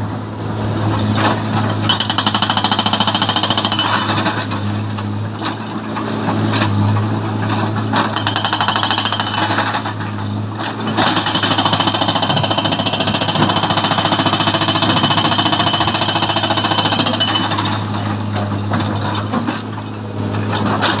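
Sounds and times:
engine hum: 0.0s - 21.0s
hydraulic breaker hammering rock: 1.6s - 4.7s, 7.7s - 19.8s.

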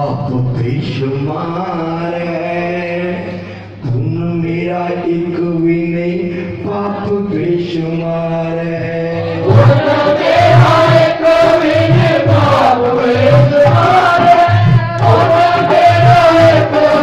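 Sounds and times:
chant melody: 3.9s - 17.0s
repeating drum beat: 8.7s - 17.0s.

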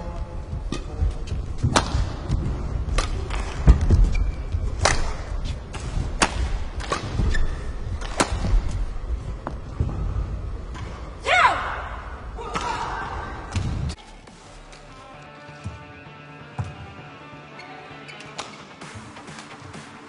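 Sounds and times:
racket hitting shuttlecock: 1.6s - 8.7s
footsteps on court: 14.0s - 16.0s.

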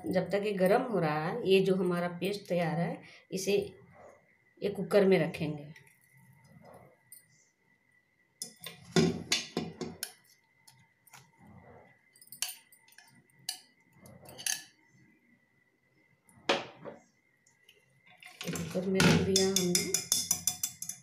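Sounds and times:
bowl and whisk knocking on metal pot: 8.9s - 10.1s, 18.4s - 21.0s.

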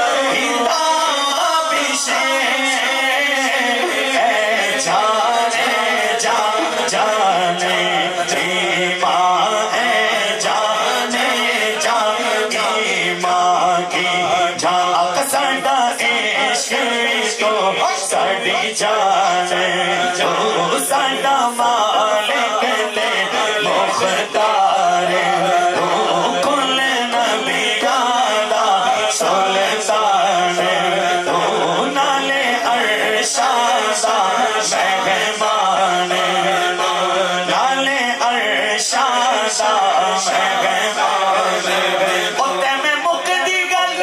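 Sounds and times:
men singing devotional song: 0.0s - 44.0s.

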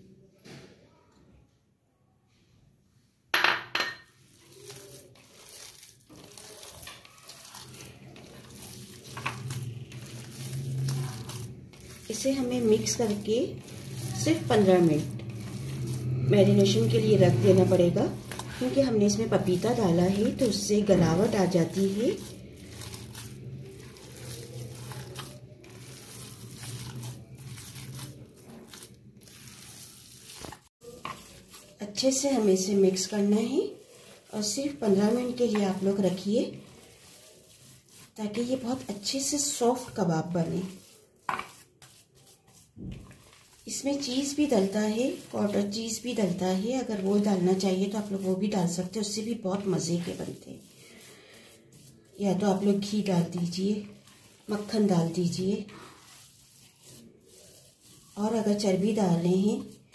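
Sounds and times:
hands squelching meat mixture: 4.2s - 59.9s.

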